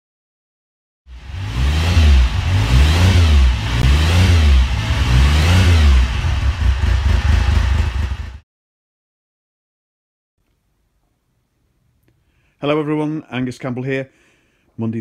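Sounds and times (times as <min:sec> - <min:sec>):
motorcycle engine revving: 0:01.1 - 0:08.4.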